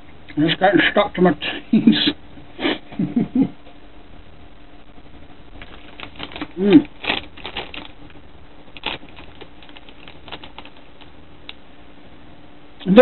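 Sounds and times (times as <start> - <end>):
plastic sweet packet crinkling: 5.5 - 11.6
person humming: 6.5 - 7.0.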